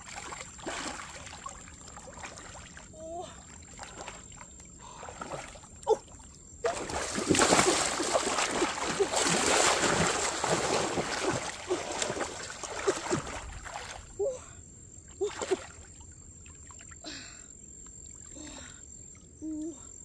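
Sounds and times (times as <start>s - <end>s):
hands splashing in muddy water: 0.0s - 2.9s, 6.6s - 14.1s.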